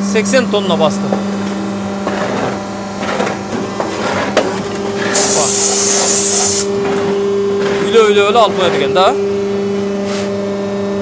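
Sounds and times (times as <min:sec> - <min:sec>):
pump motor humming: 0:00.0 - 0:11.0
compressed air hiss: 0:05.1 - 0:06.7.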